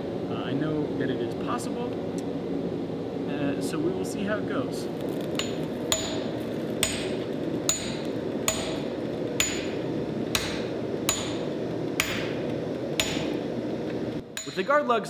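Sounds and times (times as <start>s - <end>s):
steady background noise: 0.0s - 15.0s
hammer striking hot steel: 5.3s - 13.5s, 14.2s - 14.9s.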